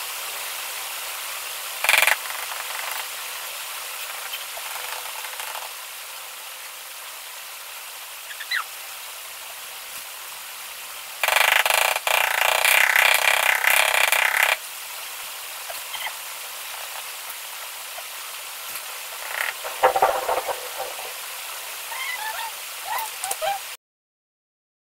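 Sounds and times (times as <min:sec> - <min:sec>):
loud rough noise: 0:11.2 - 0:14.6, 0:19.2 - 0:21.4
rubber mallet knocking tile: 0:19.4 - 0:21.2.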